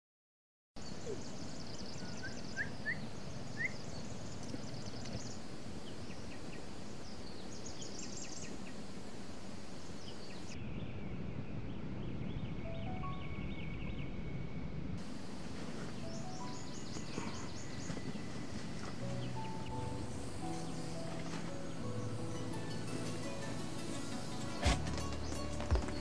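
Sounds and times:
rising bird chirps: 0:00.8 - 0:08.8, 0:09.8 - 0:14.6, 0:15.8 - 0:24.4
steady low background hiss: 0:00.8 - 0:26.0
insects chirring: 0:15.0 - 0:26.0.

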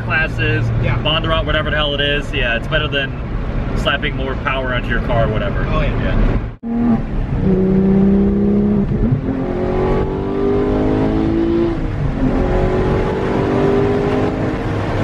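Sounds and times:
car engine accelerating: 0:05.0 - 0:15.0.

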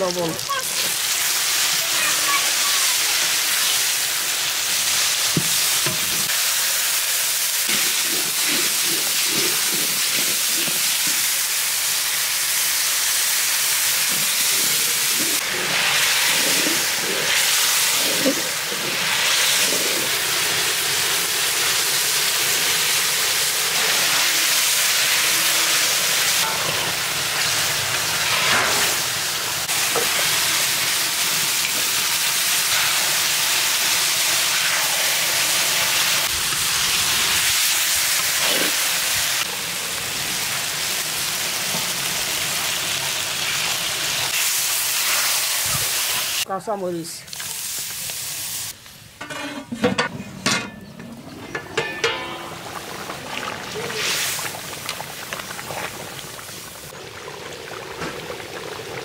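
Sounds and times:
onions sizzling in hot oil: 0:00.0 - 0:49.6, 0:51.8 - 0:59.0
metal spatula scraping pan: 0:49.2 - 0:52.8.

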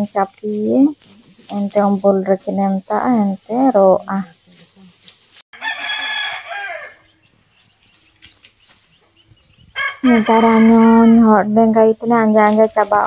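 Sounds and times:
rooster crowing: 0:05.6 - 0:07.4, 0:09.7 - 0:11.2.

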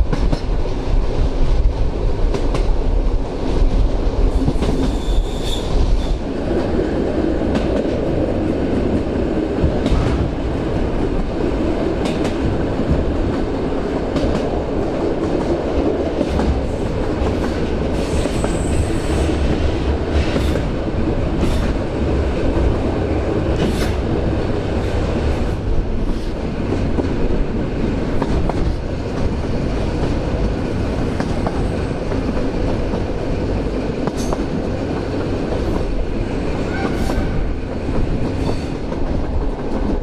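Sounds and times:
train wheels rumbling on rail: 0:00.0 - 0:40.0
high wheel squeal: 0:04.9 - 0:06.2.

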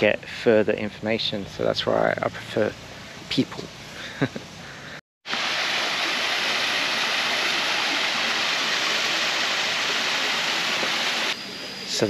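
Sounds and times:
waterfall splashing into pond: 0:05.2 - 0:11.4.

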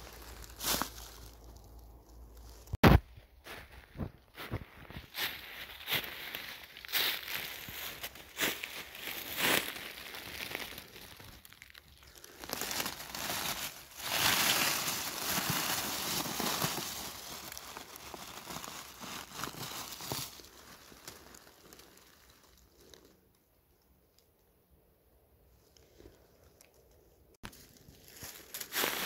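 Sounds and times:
hand rustling through dry leaves: 0:00.0 - 0:02.8, 0:04.2 - 0:23.1, 0:27.4 - 0:29.0
footsteps crunching dry leaves: 0:00.0 - 0:23.1, 0:27.4 - 0:29.0.

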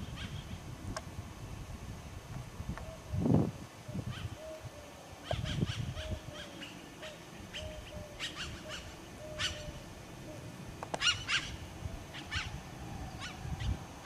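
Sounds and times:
birds chirping: 0:03.9 - 0:14.0.

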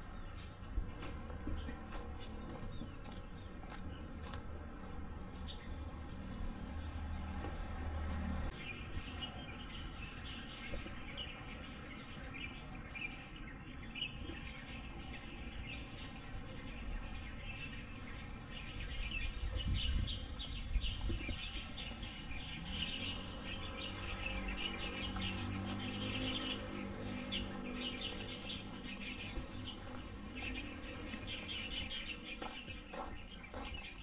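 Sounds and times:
small birds chirping: 0:00.0 - 0:34.0.

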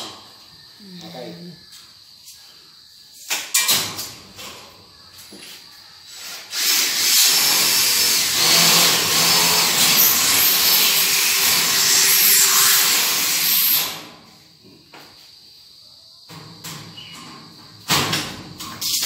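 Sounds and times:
electric drill drilling into steel: 0:06.3 - 0:14.1.

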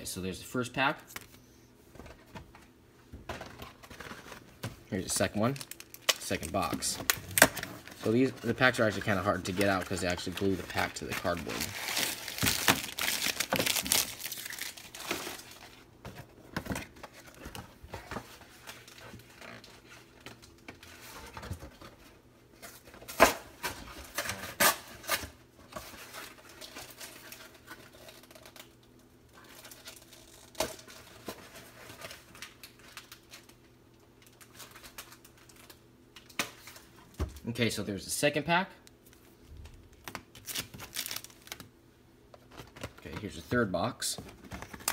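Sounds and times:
plastic wrappers crinkling: 0:03.8 - 0:15.8, 0:25.9 - 0:37.0, 0:39.0 - 0:41.7
cardboard tearing: 0:11.2 - 0:15.5.

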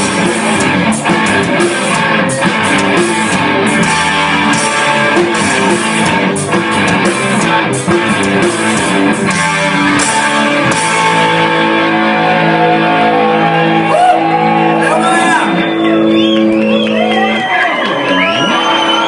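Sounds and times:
drums: 0:00.0 - 0:19.0
electric guitar: 0:00.0 - 0:19.0.

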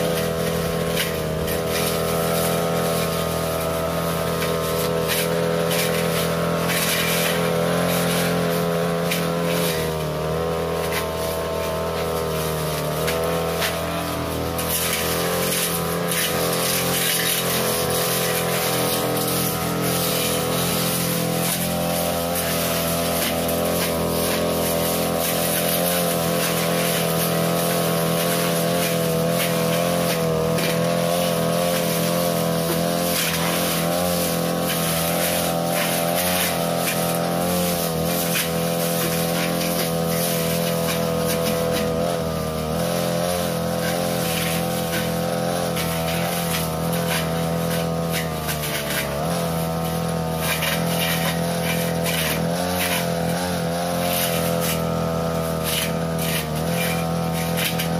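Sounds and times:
brush cutter cutting grass: 0:00.0 - 0:57.9.

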